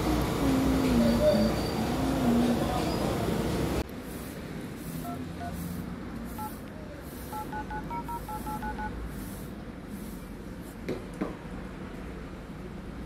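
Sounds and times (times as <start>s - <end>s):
two-tone keypad beeps: 7.3s - 9.0s.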